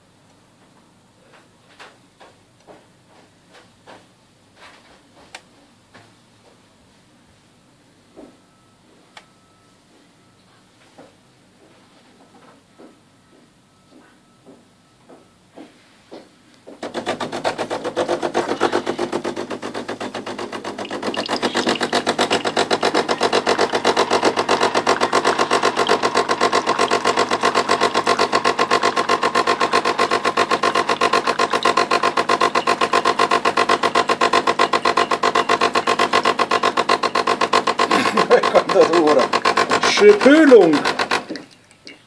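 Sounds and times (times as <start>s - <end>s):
espresso machine pump buzzing: 16.8s - 41.4s.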